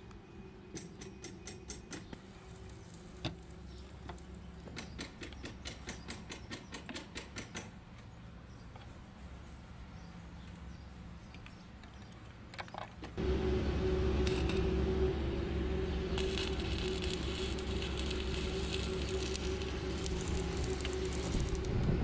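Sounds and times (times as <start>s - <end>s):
steady low hum: 13.2s - 22.0s.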